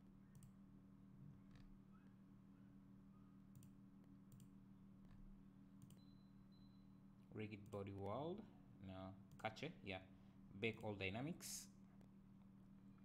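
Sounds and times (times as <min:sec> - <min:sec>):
low steady hum: 0:00.0 - 0:13.0
computer mouse clicks: 0:00.3 - 0:00.6, 0:03.5 - 0:04.5, 0:05.8 - 0:06.1.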